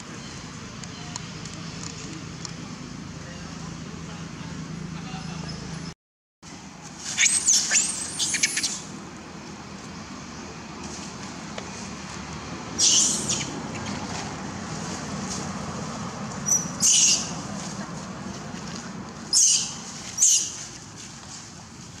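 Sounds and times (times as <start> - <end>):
shrill animal squeaks: 16.5 - 17.3, 19.3 - 20.5.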